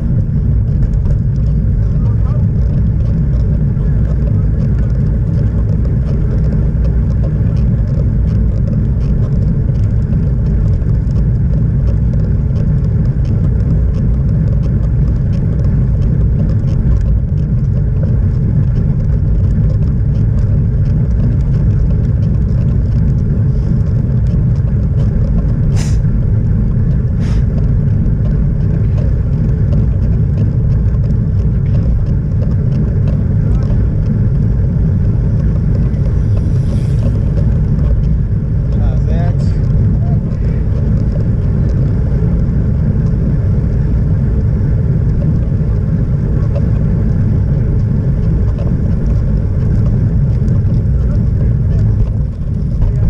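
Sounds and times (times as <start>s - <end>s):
tyre noise on tarmac: 0.0s - 53.0s
wind buffeting microphone: 0.0s - 53.0s.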